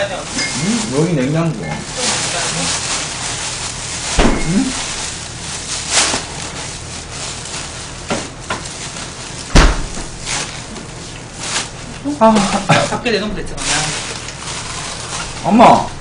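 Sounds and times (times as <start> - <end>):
plastic bag rustling and crinkling: 0.0 - 16.0
dull thumps: 4.1 - 4.9, 9.5 - 10.3.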